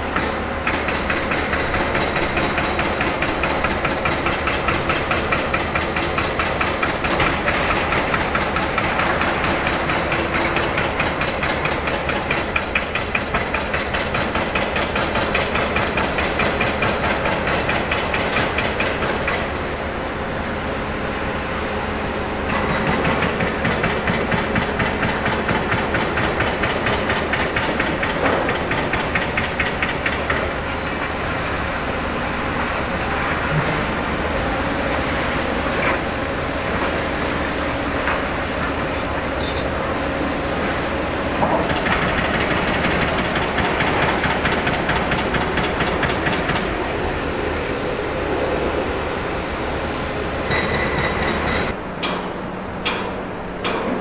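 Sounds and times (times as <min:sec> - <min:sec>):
crane diesel engine chugging: 0:00.0 - 0:54.0.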